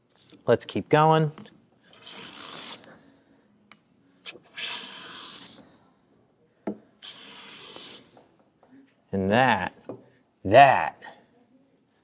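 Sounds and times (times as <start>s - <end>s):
hand plane stroke hissing: 7.0s - 8.2s.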